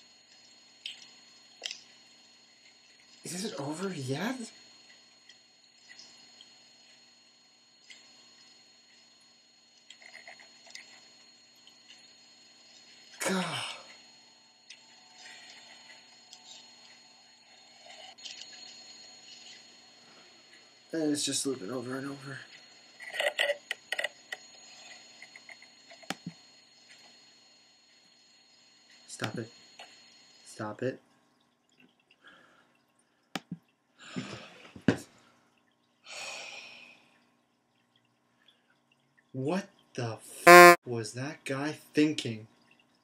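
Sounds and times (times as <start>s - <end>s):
faint high whine: 0.0s - 31.1s.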